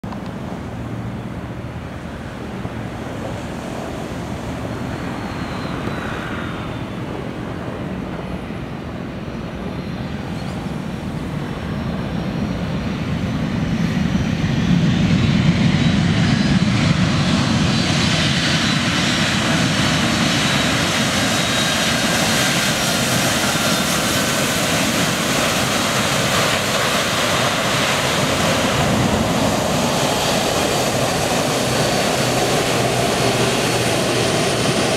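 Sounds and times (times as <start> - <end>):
jet engines: 0.0 - 34.9
touchdown on wet runway: 9.6 - 34.9.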